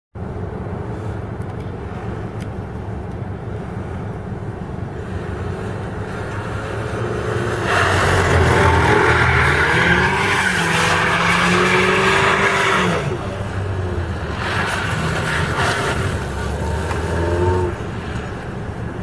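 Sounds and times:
tyres squealing on wet asphalt: 5.4s - 18.3s
car engine at low revs: 12.4s - 19.0s.

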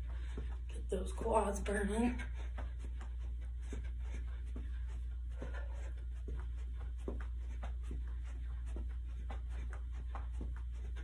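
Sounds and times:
footfalls on carpet: 0.0s - 11.0s
steady low hum: 0.0s - 11.0s.

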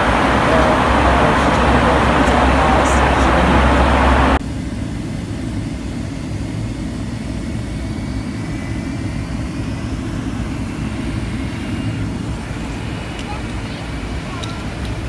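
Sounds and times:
faint high whine: 0.0s - 4.4s, 7.4s - 15.0s
jet engines rumbling: 0.0s - 15.0s.

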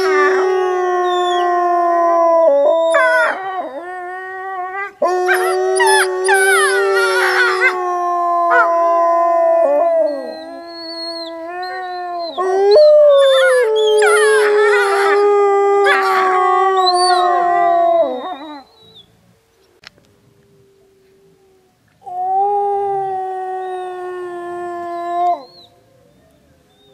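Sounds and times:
wolves howling: 0.0s - 19.0s, 20.6s - 26.9s.

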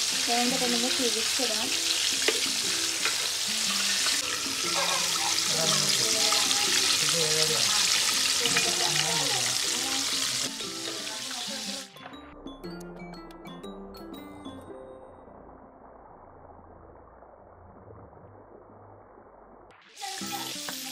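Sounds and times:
oil sizzling while deep-frying: 0.0s - 12.2s, 19.7s - 20.9s
background music: 0.0s - 15.6s.

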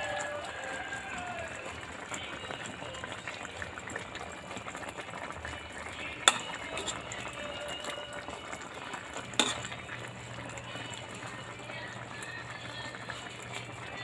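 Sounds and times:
stew simmering in a wok: 0.0s - 14.0s
metal spatula stirring: 6.0s - 7.8s, 9.2s - 10.1s
spatula clinking against pan: 6.2s - 7.2s, 9.3s - 9.8s.

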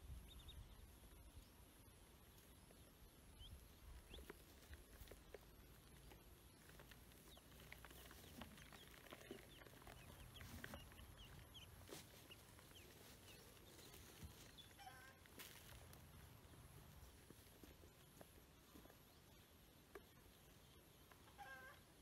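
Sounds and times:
ducklings peeping: 0.2s - 1.3s, 2.2s - 22.0s.

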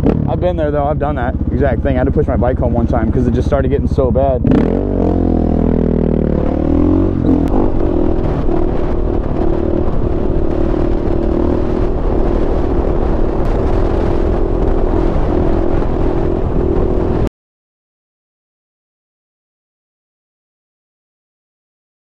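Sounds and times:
dirt bike engine revving: 0.0s - 17.3s.

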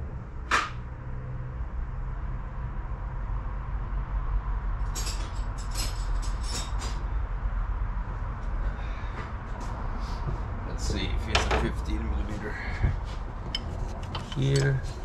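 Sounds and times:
metallic clink: 13.5s - 14.9s.

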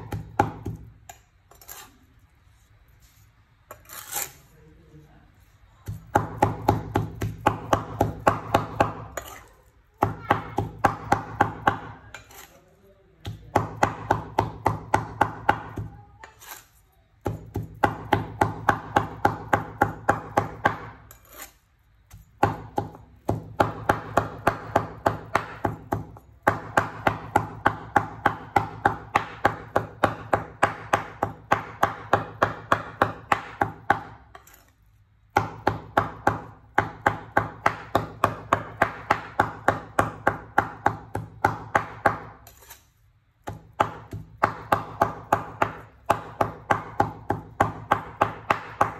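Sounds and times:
cleaver chopping meat on wood: 0.0s - 0.9s, 5.8s - 12.1s, 13.2s - 16.0s, 17.2s - 21.0s, 22.1s - 34.4s, 35.3s - 42.4s, 43.4s - 48.9s.

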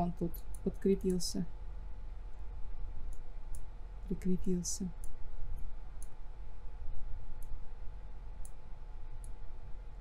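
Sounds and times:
low steady hum: 0.0s - 10.0s
computer mouse clicking: 3.1s - 3.7s, 5.0s - 6.2s, 8.4s - 8.6s, 9.2s - 9.4s.

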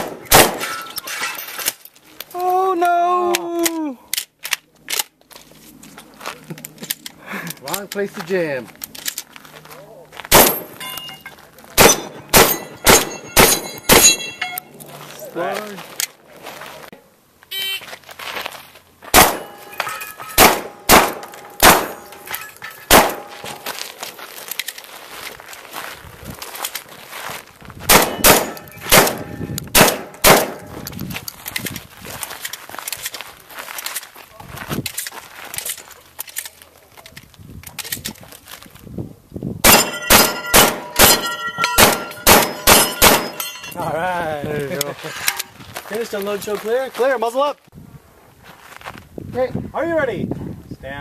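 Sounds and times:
shotgun shots: 0.0s - 0.9s, 10.3s - 10.8s, 11.8s - 14.4s, 19.1s - 19.7s, 20.4s - 22.1s, 22.9s - 23.6s, 27.9s - 30.8s, 39.6s - 43.4s
steel targets ringing: 0.5s - 1.5s, 10.4s - 14.8s, 19.2s - 23.8s, 39.7s - 43.9s
gun handling clicks: 3.3s - 5.2s, 6.5s - 8.1s, 8.7s - 9.3s, 24.5s - 24.8s, 34.8s - 38.2s.

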